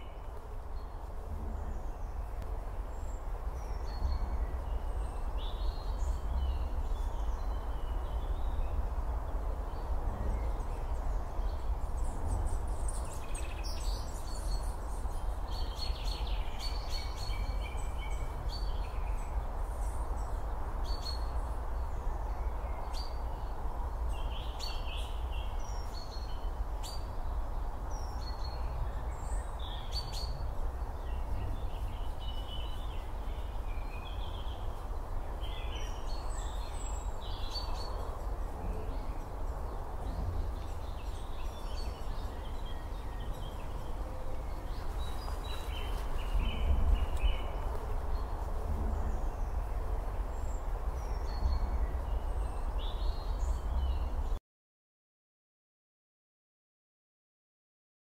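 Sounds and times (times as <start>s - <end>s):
low outdoor rumble: 0.2s - 13.2s
birds chirping: 24.1s - 54.4s.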